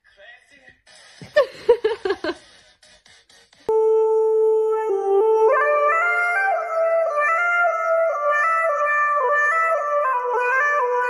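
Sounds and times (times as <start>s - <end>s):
flute-like melody: 3.7s - 11.0s.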